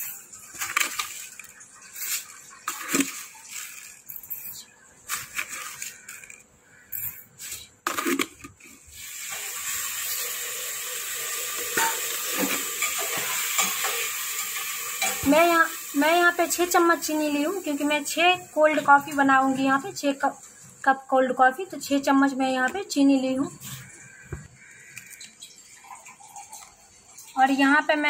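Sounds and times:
sugar rattling into bowl: 0.0s - 7.3s.

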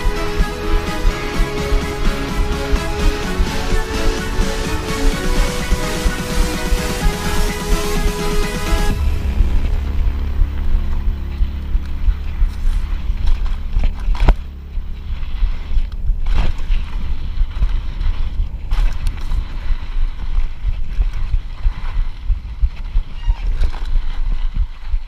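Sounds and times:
mountain bike rattling: 8.9s - 25.0s
wind buffeting microphone: 8.9s - 25.0s.

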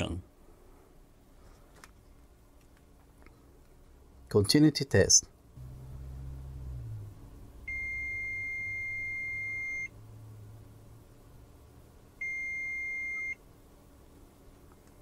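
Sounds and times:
multimeter continuity beep: 7.7s - 9.9s, 12.2s - 13.4s.

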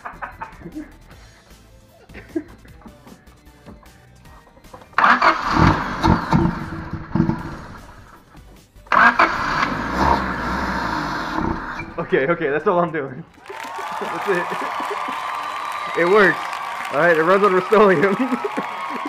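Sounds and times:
car engine starting and running: 4.7s - 12.8s.

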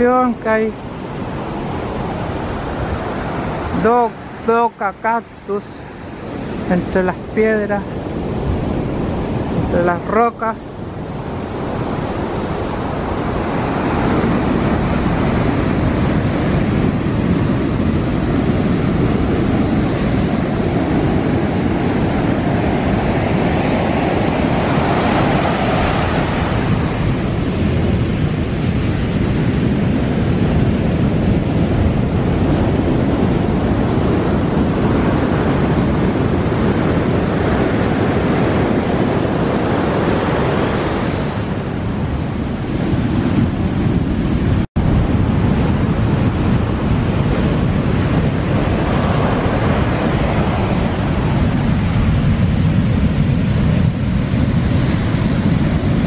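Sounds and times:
ocean surf breaking: 0.0s - 56.0s
wind on microphone: 0.0s - 56.0s.

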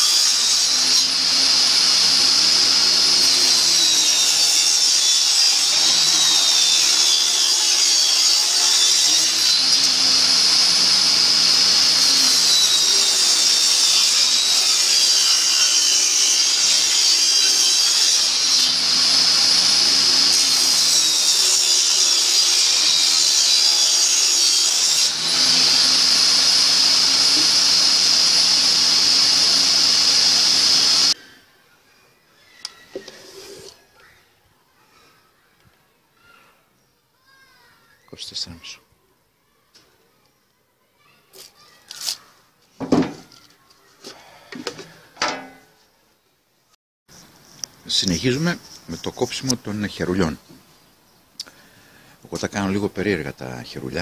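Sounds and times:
table saw cutting wood: 0.0s - 31.2s.

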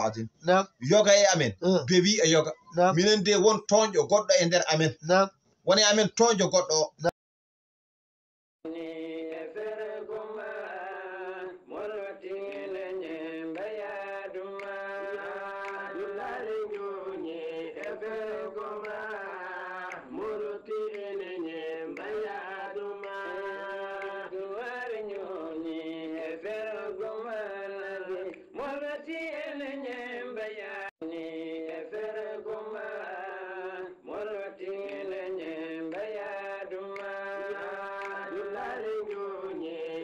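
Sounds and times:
man chanting: 0.0s - 7.1s.

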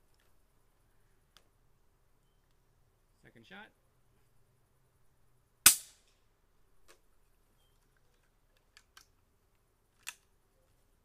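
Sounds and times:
air rifle shot: 5.7s - 6.0s
rifle handling clicks: 8.1s - 9.2s, 9.9s - 10.3s.

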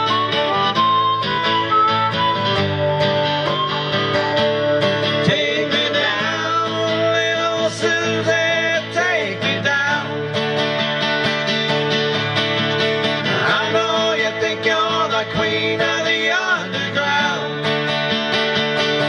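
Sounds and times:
wavering lead melody: 0.0s - 5.2s
acoustic guitars strumming: 0.0s - 19.0s.

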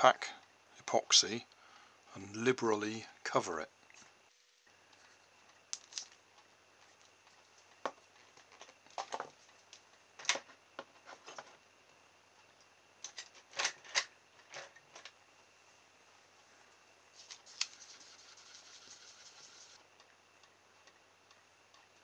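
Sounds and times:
stick scraping on paper: 17.2s - 19.8s.

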